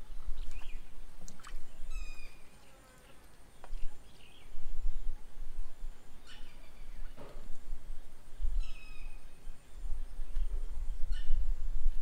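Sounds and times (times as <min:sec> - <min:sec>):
wind buffeting microphone: 0:03.7 - 0:12.0
bird chirps and calls: 0:06.2 - 0:07.3, 0:08.5 - 0:09.6, 0:10.3 - 0:11.4.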